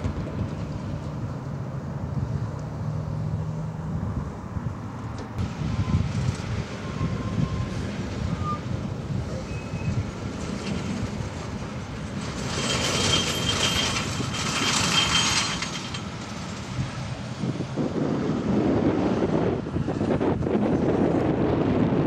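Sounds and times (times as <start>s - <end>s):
diesel truck rumble: 0.0s - 22.0s
thin high squeal: 6.8s - 8.7s, 9.3s - 10.1s, 12.4s - 16.0s.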